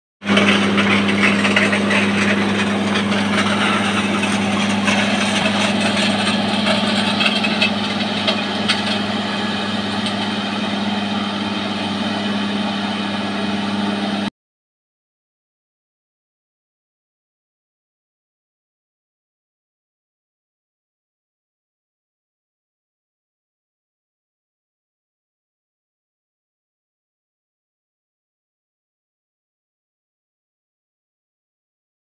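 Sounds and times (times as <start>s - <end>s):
machine engine humming: 0.2s - 14.3s.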